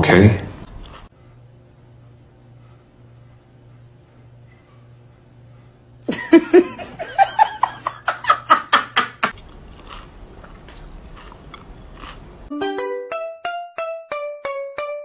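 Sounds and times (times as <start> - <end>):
faint munching: 0.6 - 1.4, 9.3 - 12.5
woman laughing: 6.1 - 9.4.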